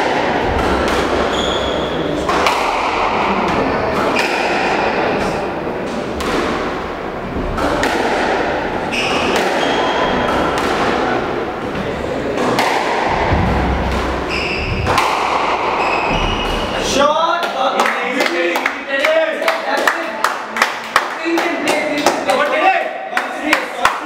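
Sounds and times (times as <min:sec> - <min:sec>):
squash ball hitting rackets and walls: 0:00.0 - 0:17.6
shoes squeaking on wooden floor: 0:01.3 - 0:02.1, 0:08.8 - 0:10.6, 0:14.2 - 0:15.0, 0:15.6 - 0:16.9.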